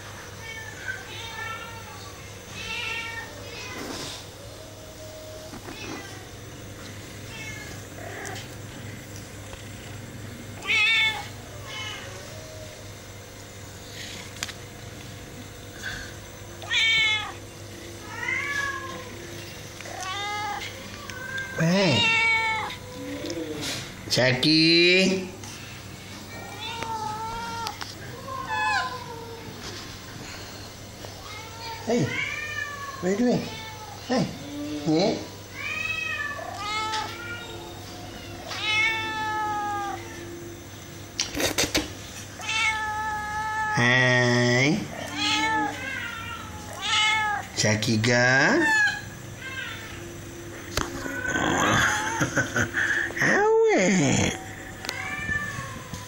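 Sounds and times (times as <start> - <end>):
cat meowing: 16.6 - 17.4, 18.0 - 19.2, 19.9 - 23.8, 35.6 - 40.4, 42.4 - 43.9, 44.9 - 47.5, 48.5 - 50.1, 54.1 - 56.0.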